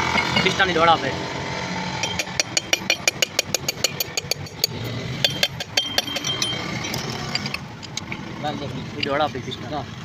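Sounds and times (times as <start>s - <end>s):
ratchet wrench clicking: 2.0s - 8.2s.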